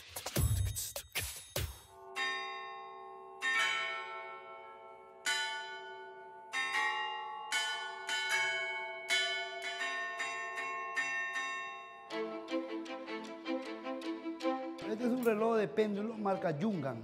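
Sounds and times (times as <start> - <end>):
clock tower bells chiming melody: 1.9 - 12.4.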